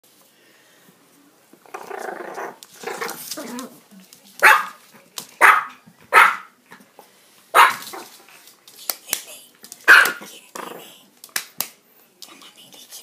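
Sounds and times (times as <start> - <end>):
small dog growling: 1.6 - 3.5
small dog barking: 4.4 - 4.8, 5.4 - 6.6, 7.5 - 8.0, 9.9 - 10.2.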